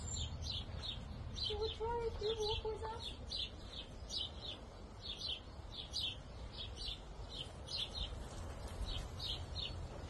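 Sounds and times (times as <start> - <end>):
small birds chirping: 0.0 - 10.0.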